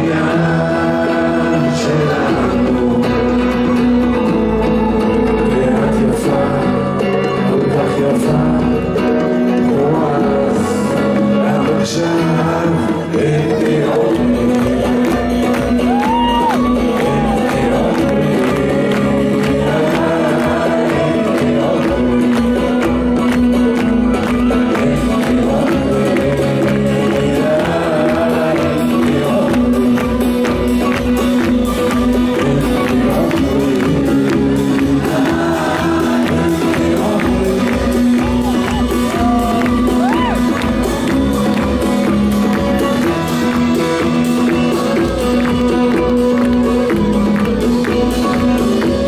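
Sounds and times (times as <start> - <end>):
crowd clapping along: 0.0 - 49.0
hand drums playing: 0.0 - 49.0
live band music: 0.0 - 49.0
person singing: 0.0 - 49.0.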